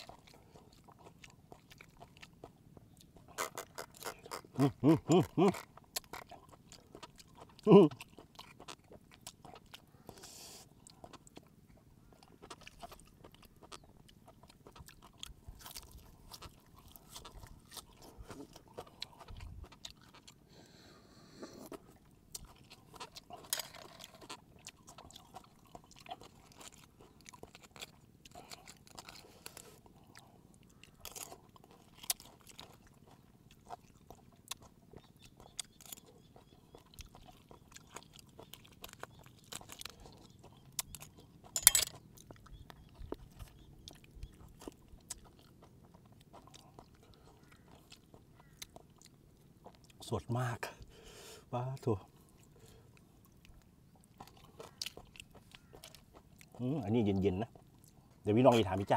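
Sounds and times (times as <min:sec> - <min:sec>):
chewing: 0:00.0 - 0:58.9
shell cracking and knife scraping: 0:41.6 - 0:42.0.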